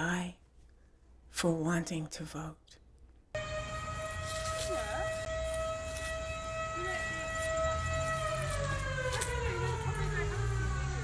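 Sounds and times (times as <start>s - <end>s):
siren: 3.4s - 11.0s.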